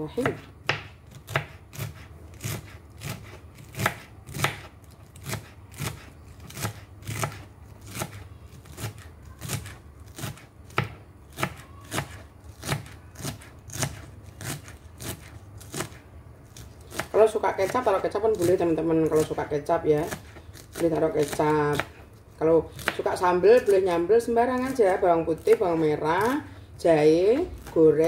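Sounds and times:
knife chopping on cutting board: 0.2 - 16.0, 22.8 - 23.7.

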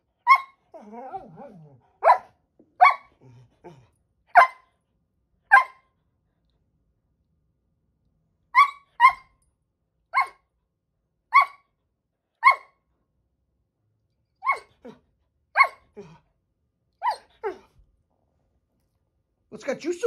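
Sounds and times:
dog barking: 1.4 - 3.2, 4.3 - 4.7, 5.5 - 5.9, 8.6 - 9.3, 10.1 - 10.5, 11.3 - 11.7, 12.4 - 12.8, 14.4 - 15.0, 15.6 - 16.2, 17.0 - 17.7.

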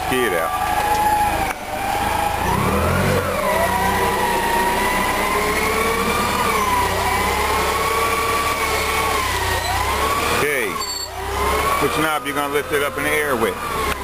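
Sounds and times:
forklift engine whining and rumbling: 0.0 - 14.0.

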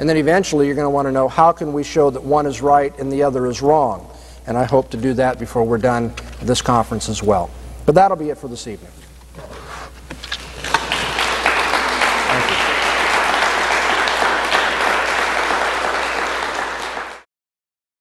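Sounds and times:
crowd clapping: 10.3 - 17.3.

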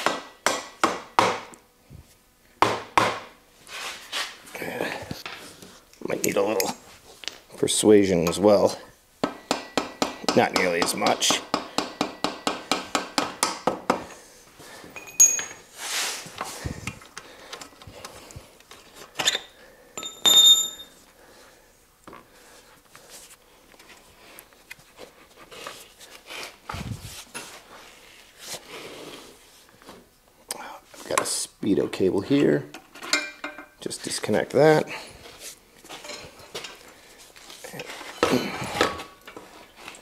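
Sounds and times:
metal clinks and knocks: 14.9 - 15.7, 19.2 - 21.0.

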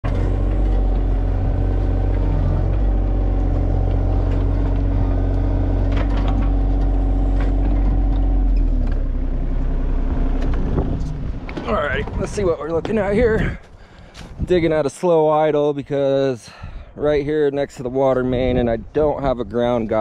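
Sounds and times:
excavator diesel engine running: 0.0 - 13.6.

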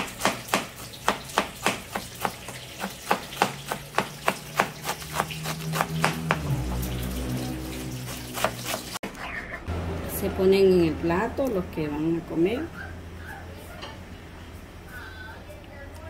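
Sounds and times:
knife chopping cabbage on board: 0.0 - 6.5, 8.4 - 9.0.

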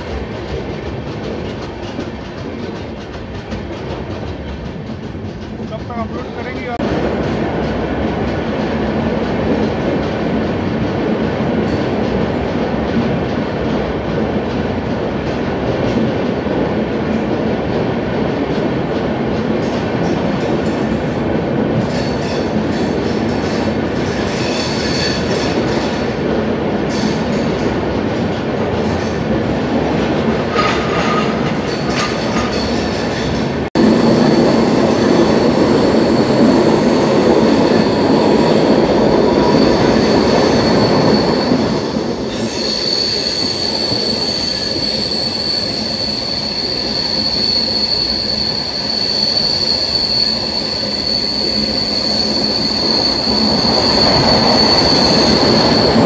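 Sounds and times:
train rumbling and clattering on track: 0.0 - 56.0
high thin wheel squeals: 34.0 - 56.0.

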